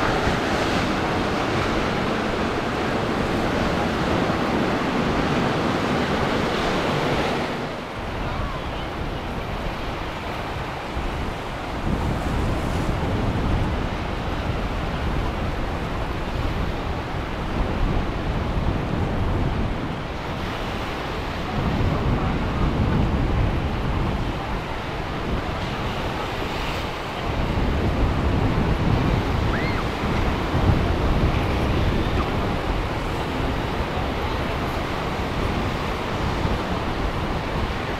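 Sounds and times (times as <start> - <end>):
ocean surf rumble: 0.0 - 37.9
wind buffeting microphone: 0.0 - 37.9.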